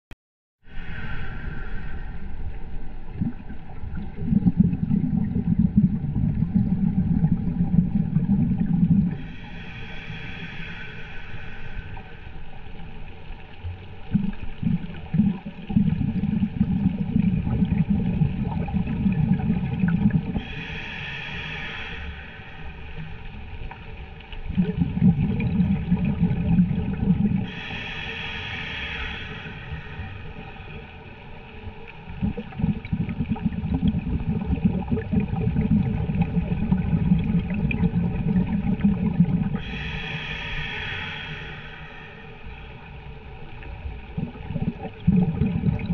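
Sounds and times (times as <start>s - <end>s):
regulator inhalation hiss: 0.7s - 2.4s, 9.2s - 13.0s, 20.4s - 23.5s, 27.4s - 31.4s, 39.6s - 43.3s
bubbling exhaled air: 3.0s - 12.2s, 14.0s - 45.9s.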